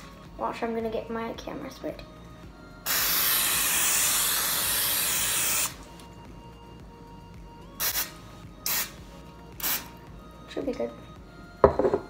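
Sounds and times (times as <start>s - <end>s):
aerosol spray hissing: 2.9s - 5.8s, 7.8s - 9.0s, 9.6s - 9.9s.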